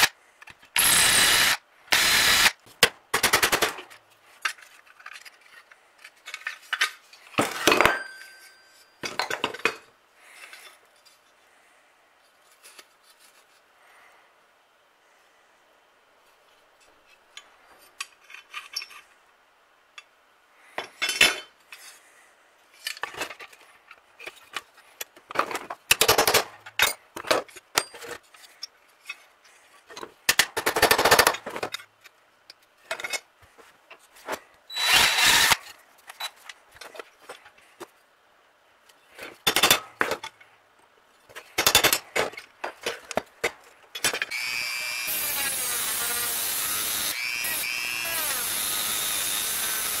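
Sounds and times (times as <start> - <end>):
power tool running: 0.8 - 2.5, 34.8 - 35.6, 44.3 - 50.0.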